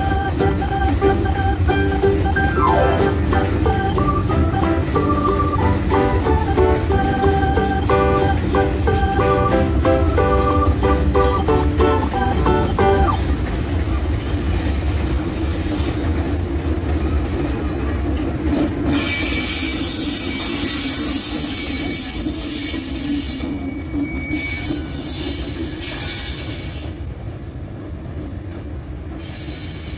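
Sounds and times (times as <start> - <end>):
freight train rumbling: 0.0 - 29.9
high-pitched wheel squeals: 18.9 - 27.0.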